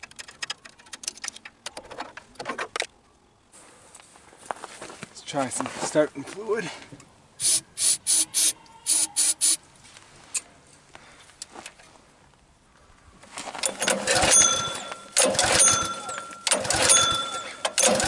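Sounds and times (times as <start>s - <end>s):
aerosol can spraying: 7.4s - 9.6s
engine cranking: 13.6s - 18.0s
recoil starter pulled: 13.6s - 18.0s.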